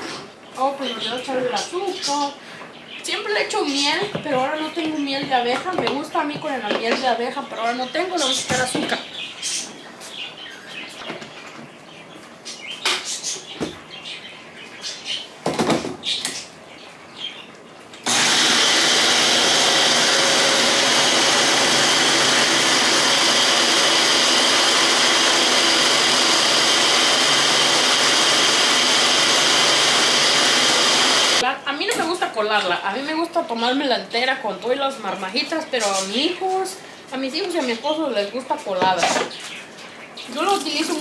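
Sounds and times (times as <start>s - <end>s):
blender running: 18.0s - 31.4s.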